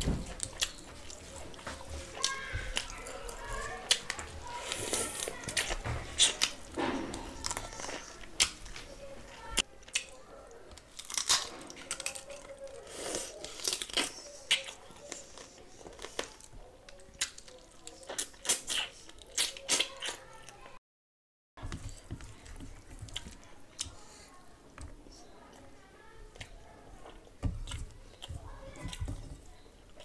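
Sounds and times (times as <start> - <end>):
chewing and lip-smacking: 0.2 - 20.7, 21.9 - 30.0.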